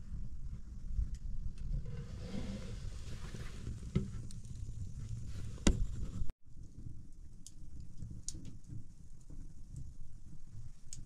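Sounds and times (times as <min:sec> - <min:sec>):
fire rumbling: 0:00.0 - 0:11.0
fire crackling pops: 0:03.0 - 0:11.0.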